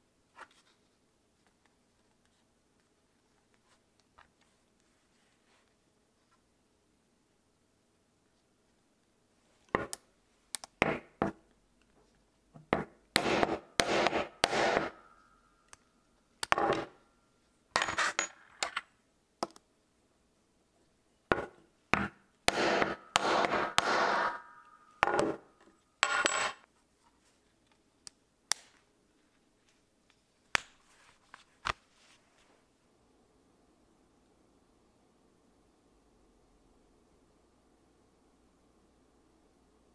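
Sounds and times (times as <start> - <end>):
hammer striking metal tool: 13.2 - 15.0, 21.3 - 25.4.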